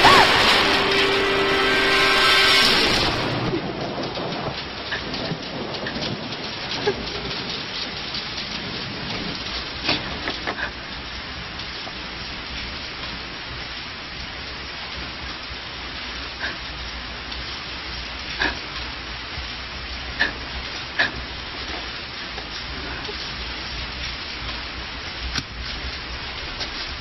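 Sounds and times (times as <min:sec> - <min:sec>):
sharp cracks: 0:00.0 - 0:04.7
heavy rain falling: 0:00.0 - 0:27.0.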